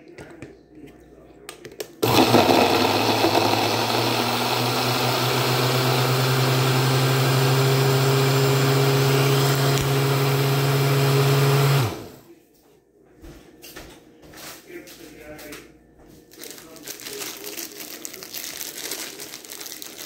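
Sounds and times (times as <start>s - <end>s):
blender running: 2.0s - 12.2s.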